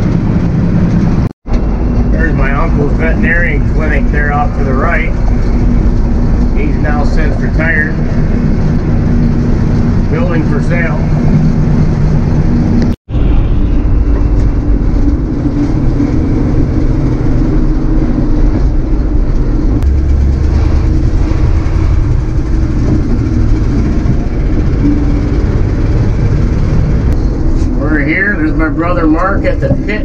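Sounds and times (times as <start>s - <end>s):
truck engine and road drone: 0.0s - 30.0s.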